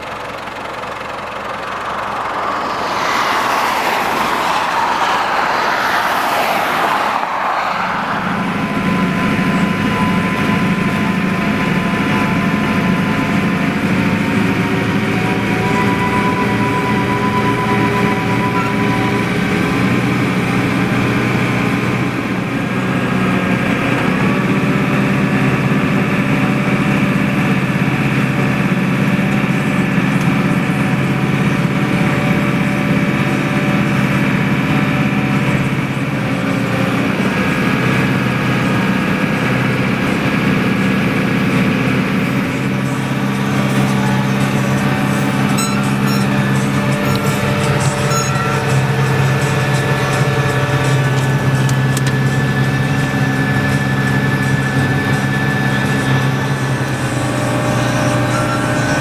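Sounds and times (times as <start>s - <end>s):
broad rushing noise: 0.0s - 11.8s
diesel tractor engine droning: 0.0s - 59.0s.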